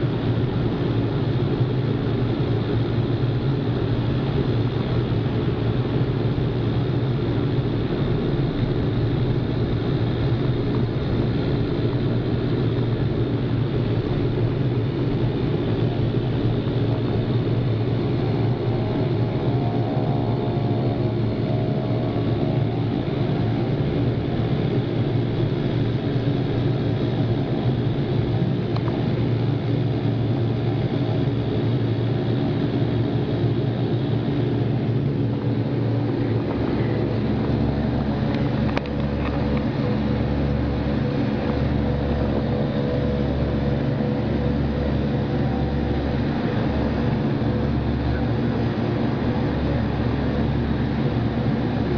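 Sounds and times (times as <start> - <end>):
turboprop engine drone in cabin: 0.0 - 51.9.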